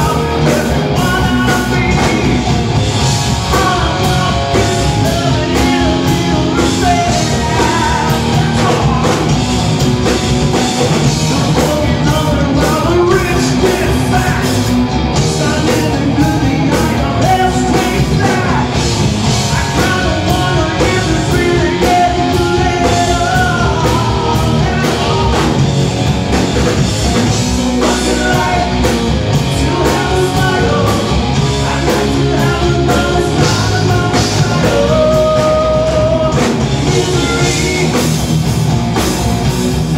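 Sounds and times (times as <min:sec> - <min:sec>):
man singing: 0:00.0 - 0:02.7, 0:03.3 - 0:09.6, 0:11.0 - 0:25.7, 0:27.0 - 0:38.2
bass guitar: 0:00.0 - 0:39.9
distorted electric guitar: 0:00.0 - 0:39.9
drum kit: 0:00.0 - 0:39.9.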